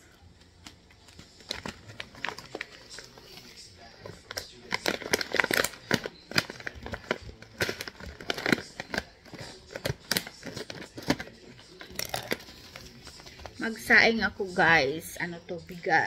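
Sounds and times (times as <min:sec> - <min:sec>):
plastic bag crinkling: 0:01.0 - 0:13.7
scissors snipping plastic: 0:04.3 - 0:12.6.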